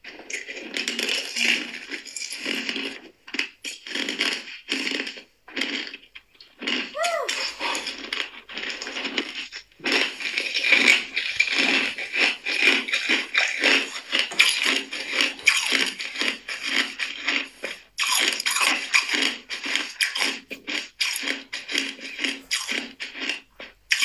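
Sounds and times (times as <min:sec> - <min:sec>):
ice being chewed: 0:00.0 - 0:24.0.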